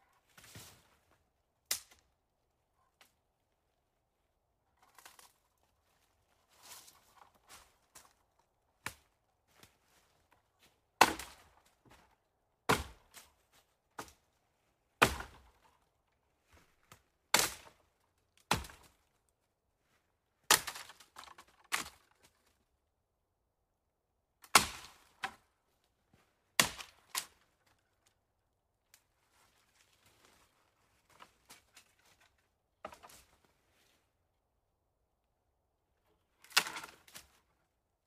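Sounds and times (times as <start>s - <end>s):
footsteps crunching on forest floor: 4.9s - 8.2s.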